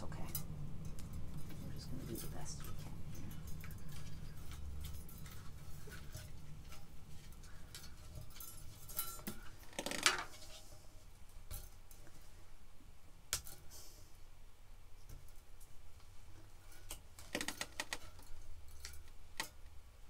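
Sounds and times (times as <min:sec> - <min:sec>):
string lights clinking on metal tray: 0:00.2 - 0:10.3.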